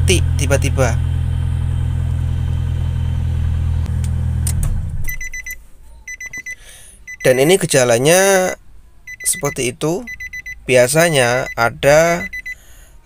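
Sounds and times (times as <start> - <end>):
car engine idling and stalling: 0.0 - 5.2
car warning chime beeping: 5.1 - 7.7, 9.1 - 12.6.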